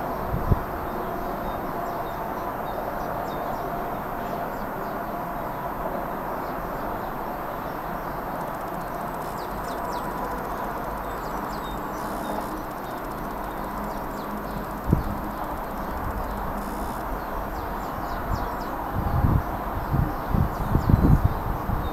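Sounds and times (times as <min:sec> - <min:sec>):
noisy outdoor background: 0:00.0 - 0:21.9
birds chirping faintly: 0:08.4 - 0:18.8.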